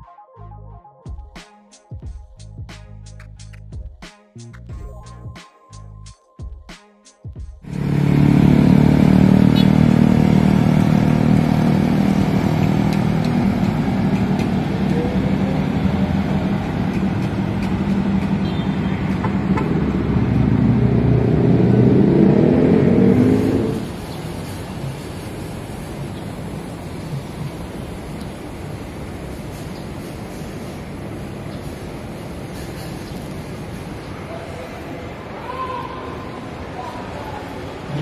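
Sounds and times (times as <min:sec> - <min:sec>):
plucked background music: 0:00.0 - 0:07.7
cars and motorcycles passing: 0:07.6 - 0:35.4, 0:36.4 - 0:38.0.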